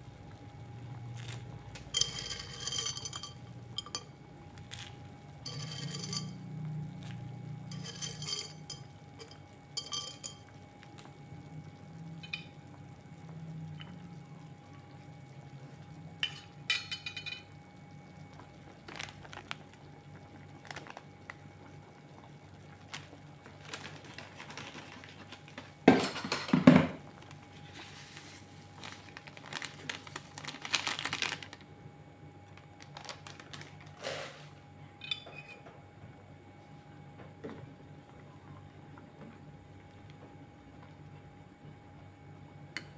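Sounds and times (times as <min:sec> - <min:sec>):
metal spoon scraping saucepan: 0:02.0 - 0:04.0, 0:05.4 - 0:06.4, 0:07.7 - 0:10.4.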